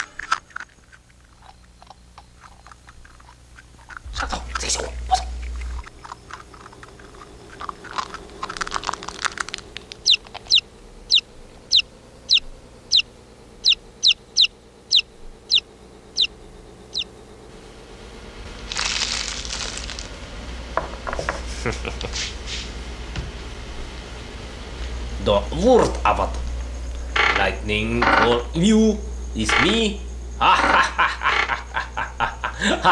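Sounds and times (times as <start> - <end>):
chick peeping: 7.5 - 17.1
short hiss: 22.1 - 22.7.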